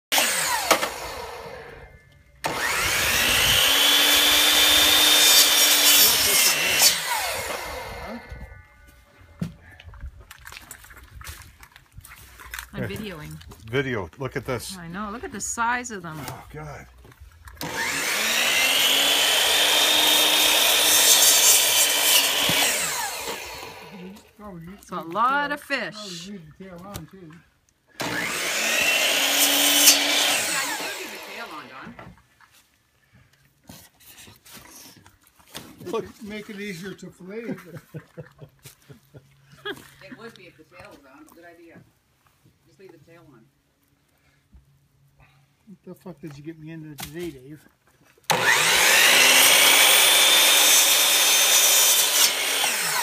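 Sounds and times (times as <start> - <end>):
electric miter saw whining: 0.1 - 8.4, 17.6 - 24.3, 28.0 - 32.0, 48.3 - 53.0
saw blade cutting fish: 2.5 - 7.7, 17.6 - 23.8.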